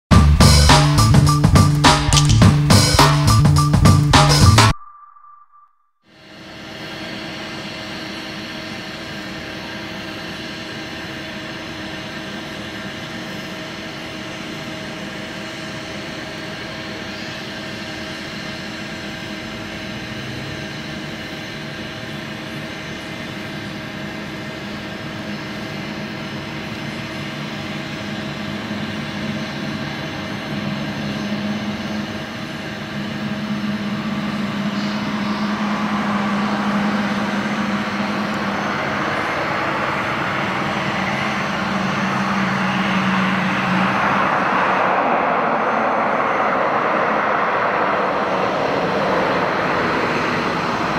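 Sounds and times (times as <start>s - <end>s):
propeller airliner droning: 0.1s - 4.7s, 6.1s - 50.9s
rushing noise: 32.7s - 50.9s.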